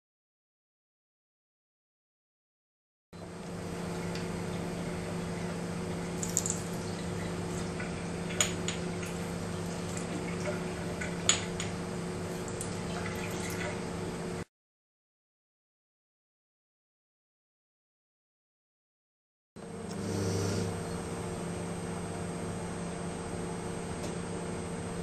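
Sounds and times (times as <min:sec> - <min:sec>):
low hum: 0:03.2 - 0:14.5
water drips and splashes: 0:05.9 - 0:13.9
tap water running into sink: 0:06.2 - 0:11.8.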